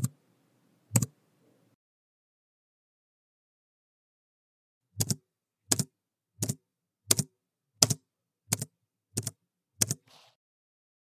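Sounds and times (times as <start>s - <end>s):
computer keyboard keystrokes: 5.0s - 10.0s.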